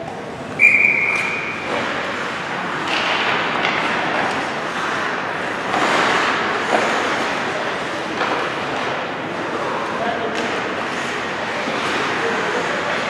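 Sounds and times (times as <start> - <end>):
ice rink crowd noise: 0.0 - 13.0
referee's whistle: 0.6 - 1.6.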